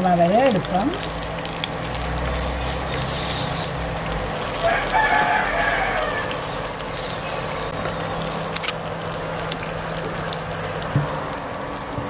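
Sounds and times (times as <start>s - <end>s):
food deep-frying in oil: 0.0s - 12.0s
oil crackles: 0.0s - 12.0s.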